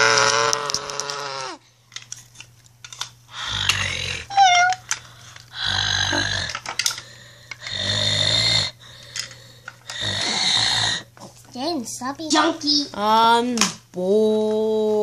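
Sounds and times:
snoring: 0:03.4 - 0:04.4, 0:05.6 - 0:06.6, 0:07.6 - 0:08.8, 0:09.9 - 0:11.1.

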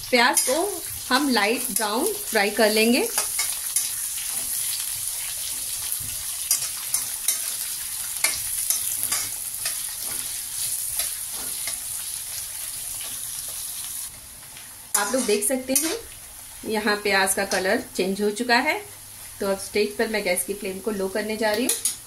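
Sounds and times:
onions sizzling in oil: 0:00.0 - 0:22.0
metal spoon scraping pan: 0:08.2 - 0:11.8, 0:15.0 - 0:16.0.

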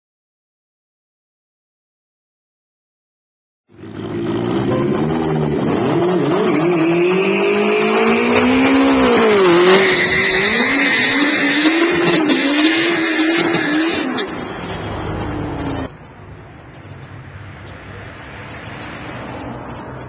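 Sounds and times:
motorcycle engine revving: 0:03.7 - 0:16.0.

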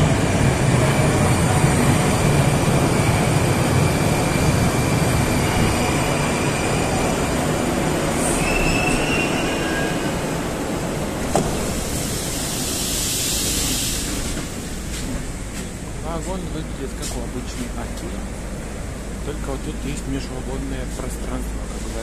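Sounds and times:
metro train running and braking: 0:00.0 - 0:22.0
brake squeal: 0:08.2 - 0:10.2.

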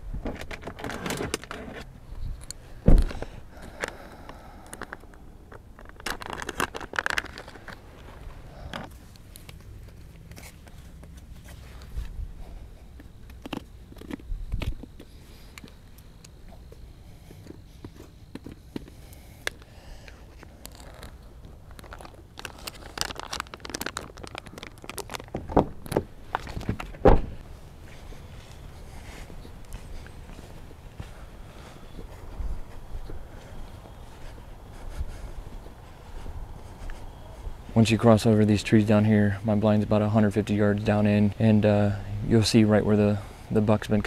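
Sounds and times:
clothing and gear rustling: 0:25.6 - 0:37.6.

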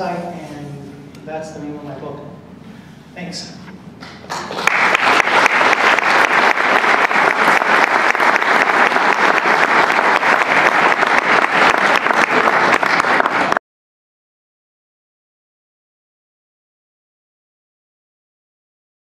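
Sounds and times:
audience applauding: 0:04.0 - 0:13.6.

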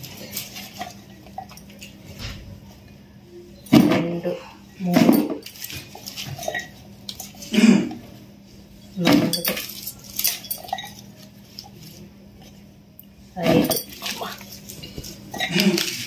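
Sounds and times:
steel tumbler clinking: 0:09.2 - 0:11.1.

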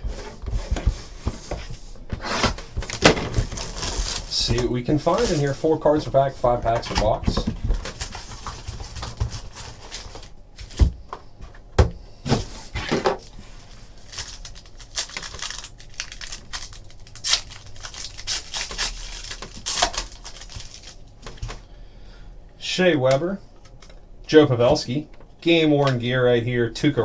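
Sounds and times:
foil wrapper crinkling and tearing: 0:02.9 - 0:05.6, 0:13.6 - 0:21.4.

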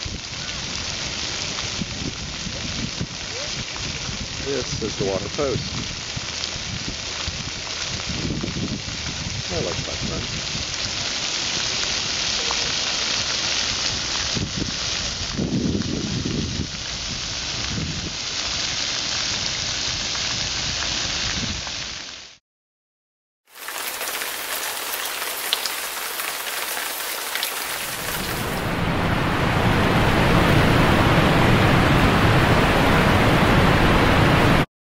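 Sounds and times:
water jets spraying on concrete: 0:00.0 - 0:22.4, 0:23.5 - 0:28.7.

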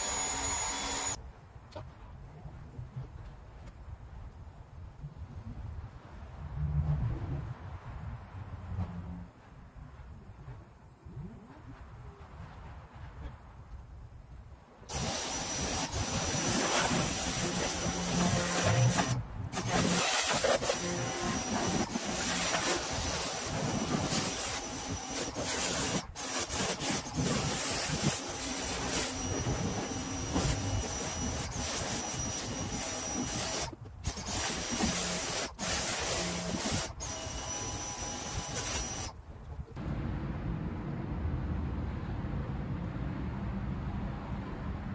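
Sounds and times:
pressure washer spraying: 0:14.9 - 0:39.1.

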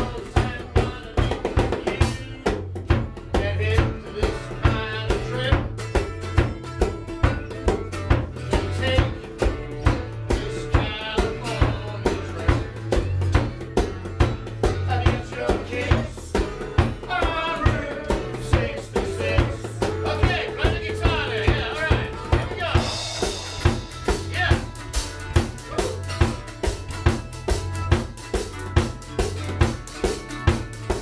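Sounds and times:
person singing: 0:00.0 - 0:02.6, 0:14.9 - 0:23.4
drum kit beat: 0:00.0 - 0:31.0
guitar: 0:00.0 - 0:31.0.

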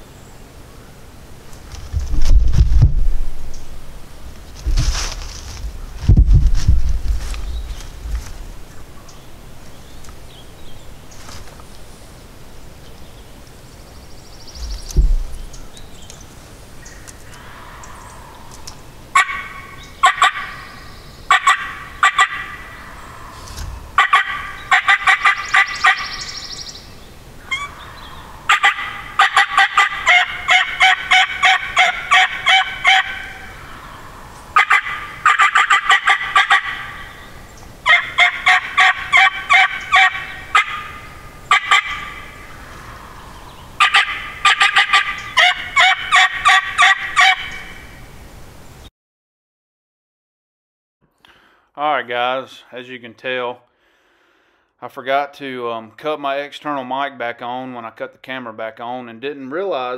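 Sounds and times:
wild turkey calling: 0:16.8 - 0:48.0.

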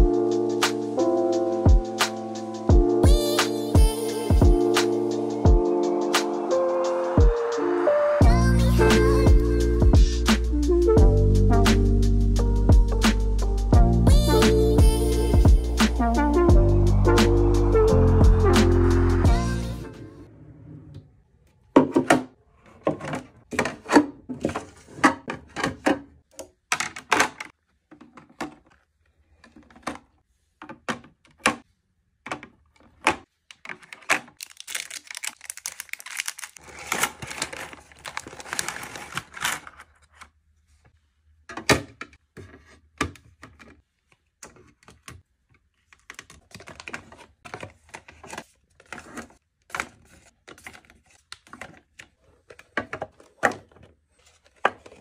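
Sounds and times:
packaging rustling: 0:33.6 - 0:40.3, 0:45.9 - 0:55.0.

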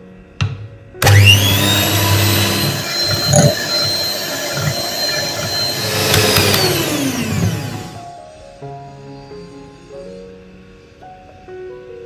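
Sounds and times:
electric hand mixer whirring: 0:01.0 - 0:08.2.

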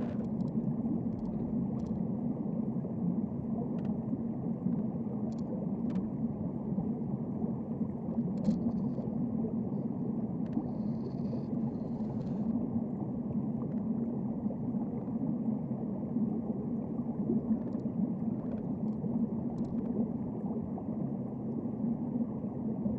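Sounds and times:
faint clicks: 0:00.0 - 0:02.0, 0:05.3 - 0:06.1, 0:10.4 - 0:12.5, 0:17.6 - 0:20.0
muffled underwater rumble: 0:00.0 - 0:22.9.

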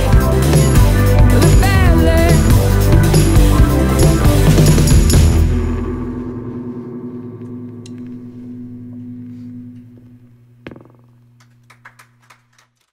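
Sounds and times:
band's low held chord ringing: 0:00.0 - 0:11.7
cymbal shimmer: 0:02.3 - 0:10.6.

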